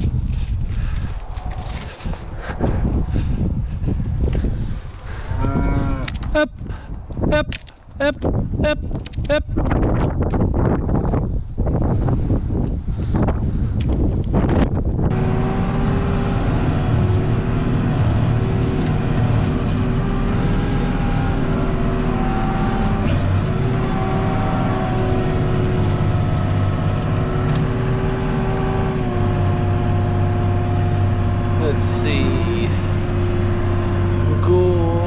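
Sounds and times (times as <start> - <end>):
wind on microphone: 0.0 - 15.2
tractor engine running: 15.0 - 35.0
steady machine whine: 15.1 - 34.4.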